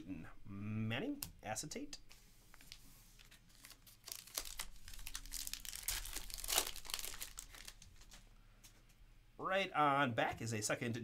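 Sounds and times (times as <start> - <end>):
foil wrapper crinkling and tearing: 3.2 - 8.2.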